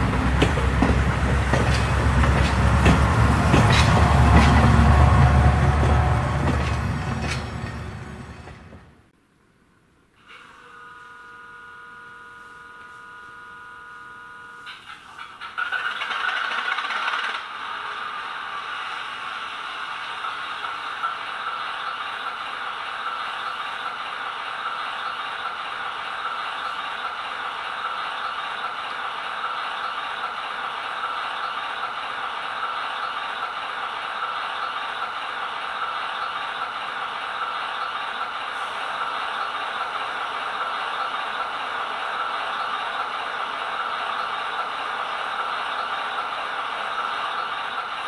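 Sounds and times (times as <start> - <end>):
model locomotive diesel engine idling: 0.0 - 9.0, 10.4 - 48.0.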